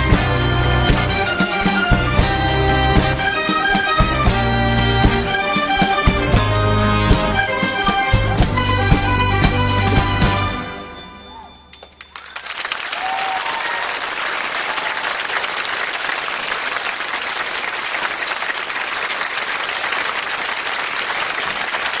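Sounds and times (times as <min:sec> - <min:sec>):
music: 0:00.0 - 0:12.2
audience applause: 0:11.7 - 0:22.0.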